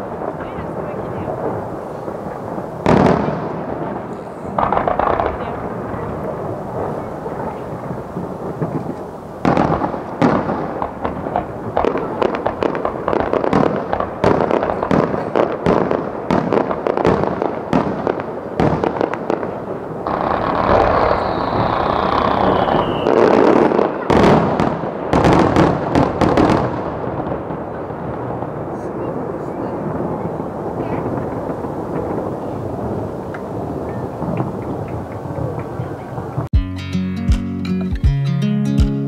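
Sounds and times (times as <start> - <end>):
fireworks bangs and crackles: 0.0 - 36.6
firework whistle falling in pitch: 20.6 - 23.7.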